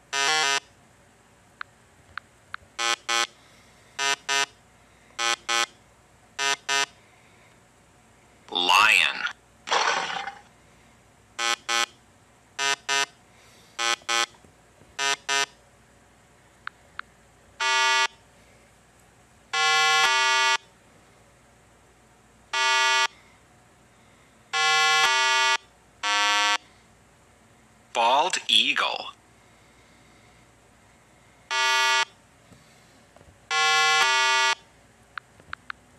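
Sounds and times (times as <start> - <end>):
buzzer-like tones: 0.1 - 0.7, 2.8 - 3.4, 4.0 - 4.6, 5.2 - 5.8, 6.4 - 7.0, 11.4 - 11.9, 12.6 - 13.2, 13.8 - 14.3, 15.0 - 15.6, 17.6 - 18.2, 19.6 - 20.6, 22.6 - 23.1, 24.6 - 26.6, 31.5 - 32.2, 33.5 - 34.6.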